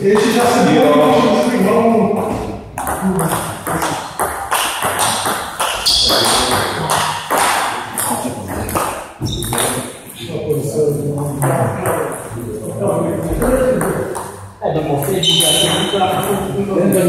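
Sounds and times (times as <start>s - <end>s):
table tennis ball tapping: 2.2s - 9.8s.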